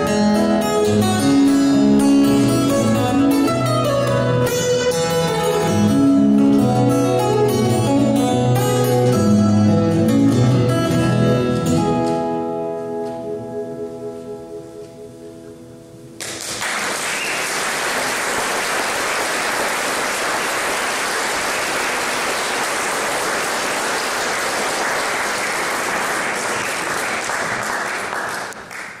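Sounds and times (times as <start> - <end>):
acoustic guitar chord ringing: 0.0 - 16.2
audience applauding: 16.2 - 29.0.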